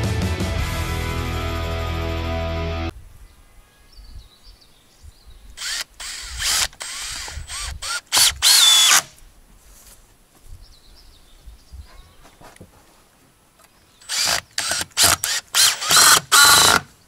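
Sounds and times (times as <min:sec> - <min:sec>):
cordless drill bursts into wood: 0:05.6 - 0:09.2, 0:14.0 - 0:16.9.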